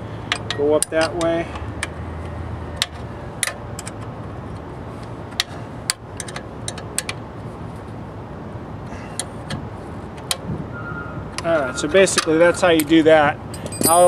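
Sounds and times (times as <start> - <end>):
wrenches clicking on metal: 12.1 - 14.0.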